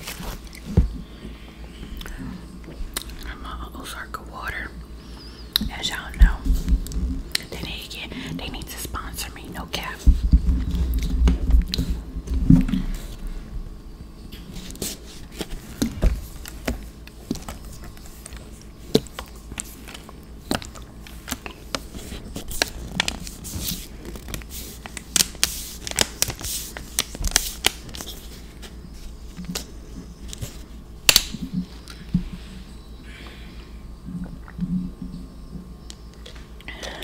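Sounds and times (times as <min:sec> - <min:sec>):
wet mouth clicks and smacks: 0:02.9 - 0:03.2.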